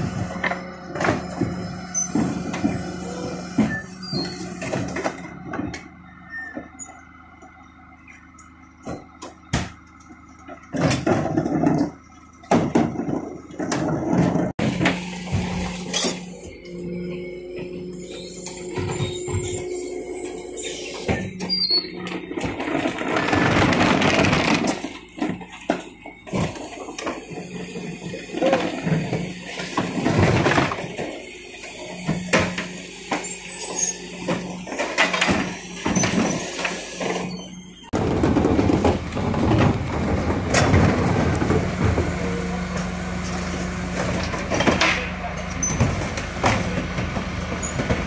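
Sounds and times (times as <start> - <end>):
hydraulic hum: 0.0 - 48.0
wheelie bins clattering: 0.0 - 48.0
packer scraping and creaking: 12.9 - 31.0, 33.2 - 48.0.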